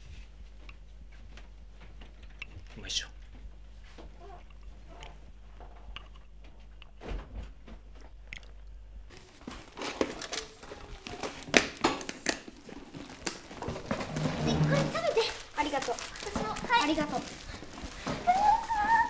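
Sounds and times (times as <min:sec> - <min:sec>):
low steady hum: 0:00.0 - 0:19.0
backpack being packed: 0:12.5 - 0:15.6.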